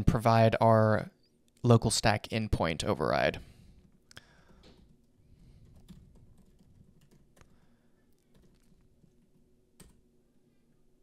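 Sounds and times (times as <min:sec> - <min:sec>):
keyboard typing: 0:03.8 - 0:10.0.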